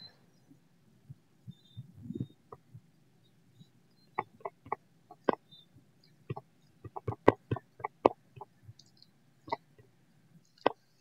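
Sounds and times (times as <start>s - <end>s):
touchscreen typing taps: 6.3s - 8.5s.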